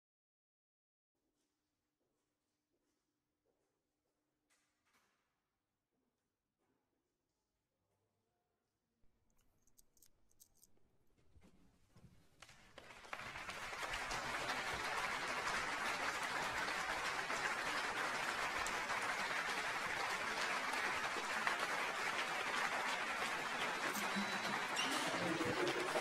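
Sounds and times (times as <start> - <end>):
crowd applause: 12.5 - 26.0.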